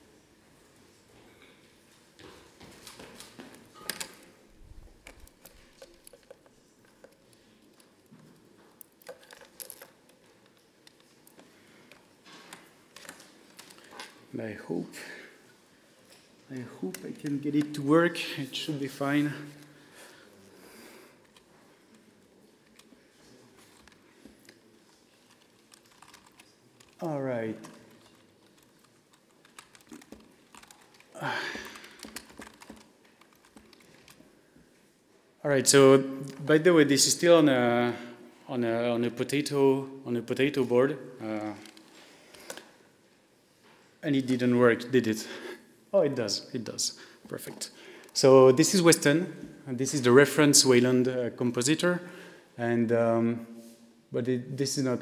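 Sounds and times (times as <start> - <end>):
laptop keyboard typing: 25.3 - 34.2.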